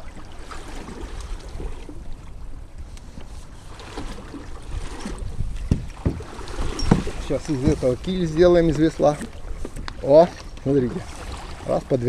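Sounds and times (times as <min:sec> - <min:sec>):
water splashing against a hull: 0:00.0 - 0:12.0
wind buffeting microphone: 0:04.1 - 0:12.0.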